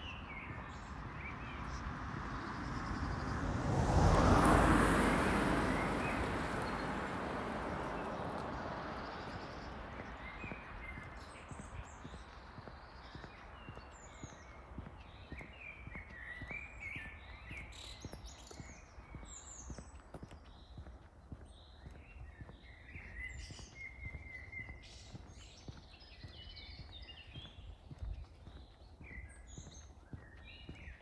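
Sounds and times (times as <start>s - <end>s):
small birds chirping: 0.0s - 3.5s, 5.6s - 31.0s
faint footsteps: 7.7s - 31.0s.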